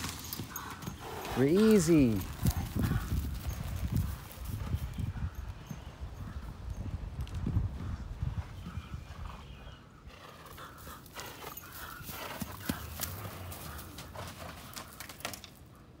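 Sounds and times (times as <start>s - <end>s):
horse hoofbeats on soft turf: 11.2s - 15.3s.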